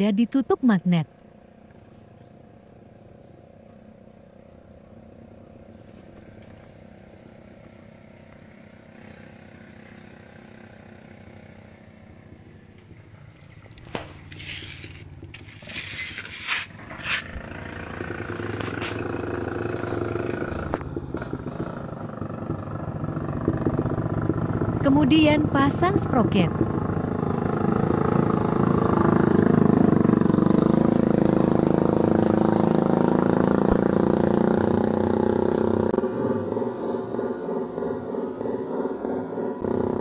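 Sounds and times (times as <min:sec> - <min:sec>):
motorcycle engine running: 0:00.0 - 0:40.0
thin high whine: 0:12.1 - 0:21.3
handling clicks and scrapes: 0:13.7 - 0:17.4, 0:18.5 - 0:19.2.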